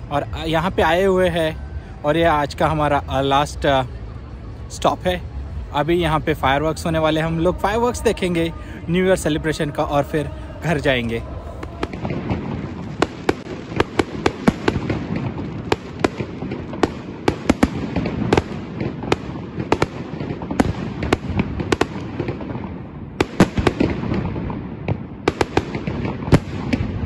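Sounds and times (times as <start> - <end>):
steady low rumble: 0.0 - 27.0
fireworks bangs and cracks: 9.3 - 27.0.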